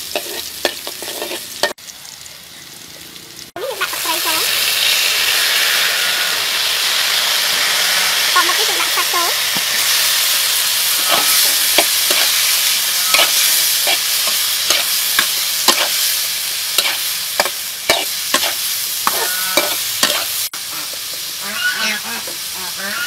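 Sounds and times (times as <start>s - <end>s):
metal spatula scraping a pan: 0.0s - 1.8s, 10.9s - 16.1s, 16.8s - 22.4s
food sizzling in oil in a wok: 0.0s - 23.0s.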